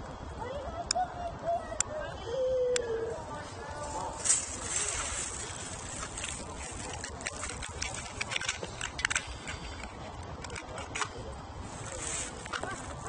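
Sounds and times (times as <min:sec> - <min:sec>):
small clicks and crackles: 0:03.6 - 0:13.0.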